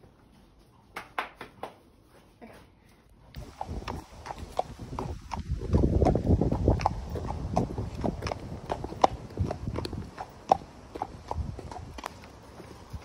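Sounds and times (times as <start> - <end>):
low microphone rumble: 3.4 - 12.0
horse hooves clip-clopping: 3.4 - 13.0.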